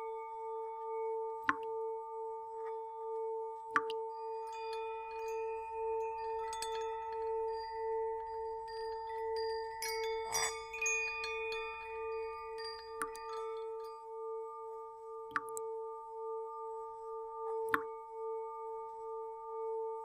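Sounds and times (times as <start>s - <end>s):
high ringing chimes: 4.0s - 14.8s.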